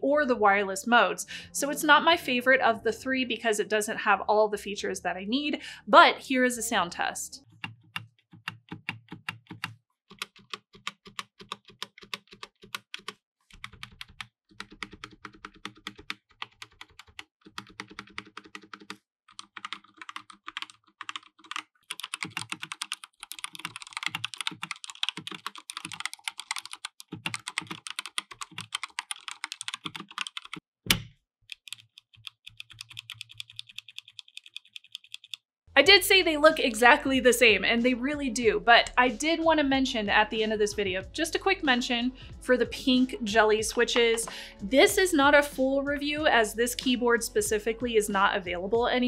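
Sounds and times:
clicky mechanical keyboard typing: 8.4s - 35.4s.

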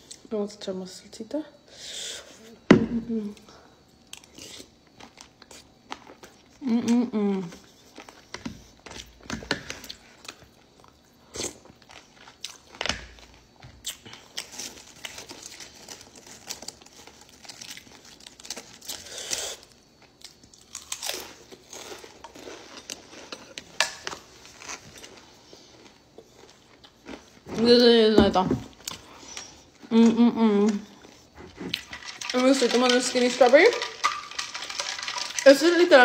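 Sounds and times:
chewing: 13.8s - 27.5s, 28.7s - 35.7s.

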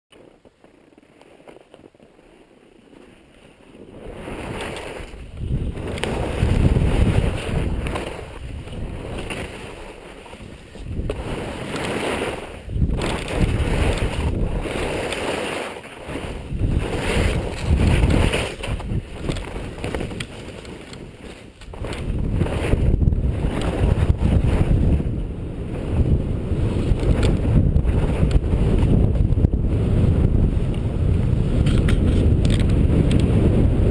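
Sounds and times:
skis scraping over snow: 0.1s - 33.9s
wind buffeting microphone: 3.6s - 15.4s, 16.0s - 33.9s.

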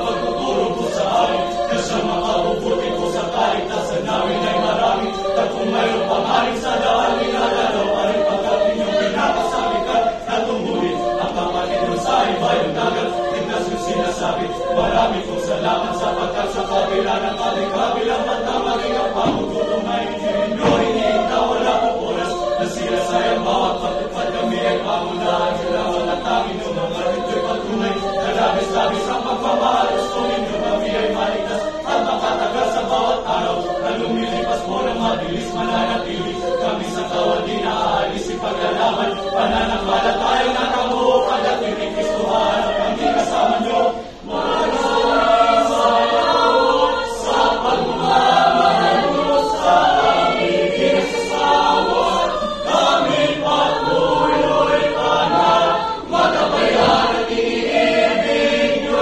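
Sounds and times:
mixed choir singing in harmony: 0.0s - 59.0s.

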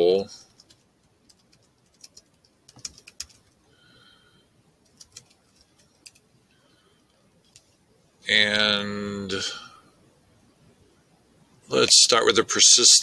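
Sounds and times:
computer keyboard typing: 0.5s - 3.6s, 4.8s - 6.3s.

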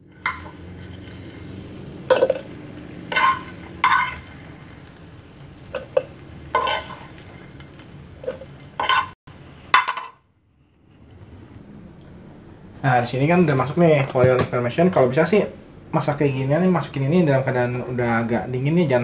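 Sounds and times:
utensil scraping frying pan: 0.0s - 10.2s.

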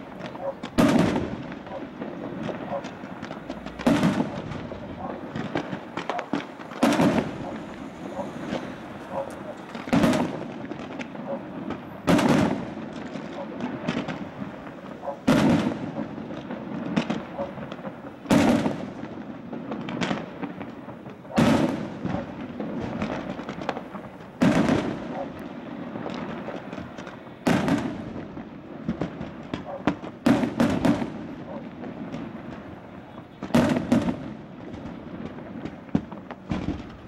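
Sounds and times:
firework shells bursting: 0.0s - 19.0s
firework pops and crackling: 0.0s - 37.0s.

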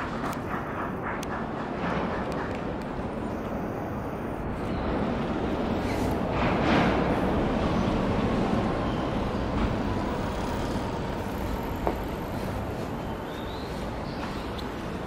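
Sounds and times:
vehicle passing road noise: 4.8s - 14.0s.

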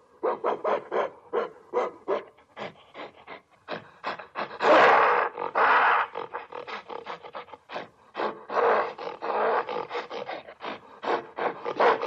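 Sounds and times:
gorilla grunting: 2.5s - 11.8s.

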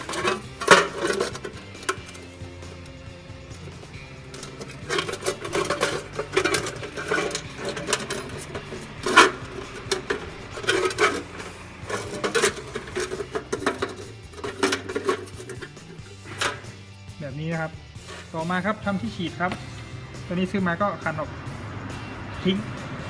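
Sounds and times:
copper coil clanking in tin can: 0.0s - 16.8s.

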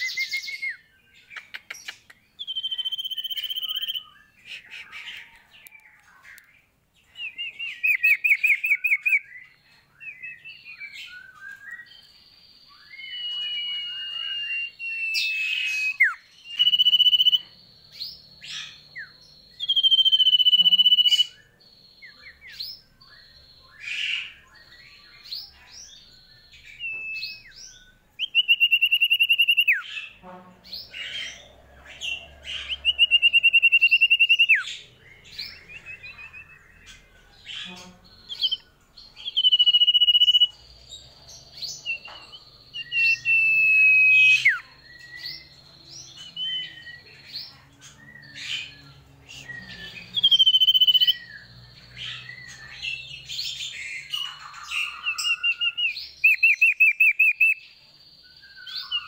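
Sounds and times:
bird trill: 0.0s - 6.4s, 7.1s - 59.0s
bird chirps: 0.0s - 59.0s
bird whistled notes: 2.4s - 5.3s, 12.7s - 17.5s, 18.4s - 21.4s, 39.2s - 40.6s, 41.8s - 45.6s, 48.5s - 51.4s.

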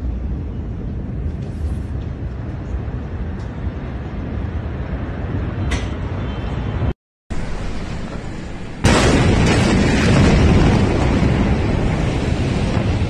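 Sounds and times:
low rumbling noise: 7.3s - 13.0s.

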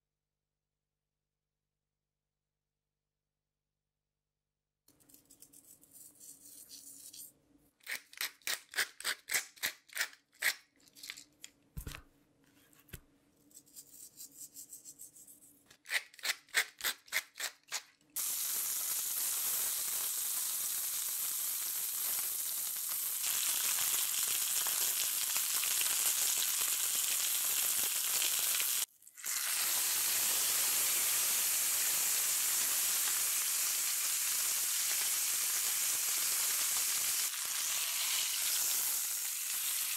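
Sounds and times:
steak sizzling in skillet: 18.2s - 39.9s.

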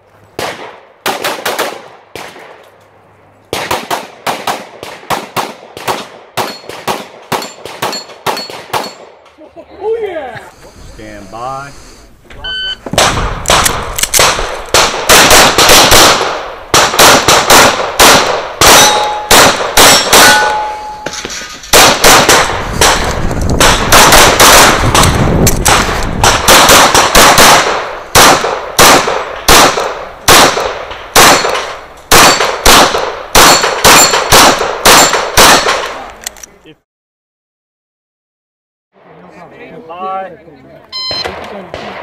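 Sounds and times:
pistol shots: 3.5s - 9.2s, 13.0s - 21.0s, 21.7s - 36.0s.

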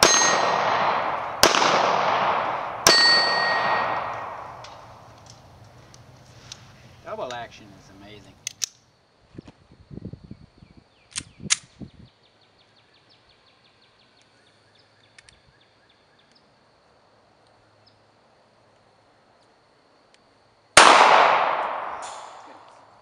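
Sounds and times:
pistol shot with echo: 0.0s - 5.2s, 20.8s - 22.7s
pistol handling clicks: 4.1s - 6.6s, 8.4s - 8.8s, 11.1s - 11.7s.

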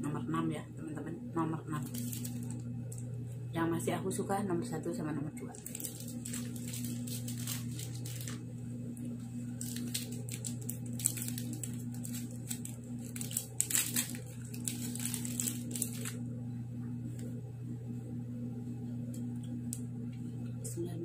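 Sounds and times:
steady low hum: 0.0s - 21.0s
plastic wrapper crinkling: 1.7s - 3.2s, 5.4s - 16.3s.

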